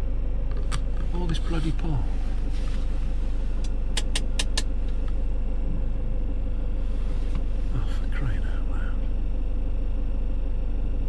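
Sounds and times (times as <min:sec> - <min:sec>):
van engine humming: 0:00.0 - 0:11.0
sharp clicks: 0:03.6 - 0:04.7.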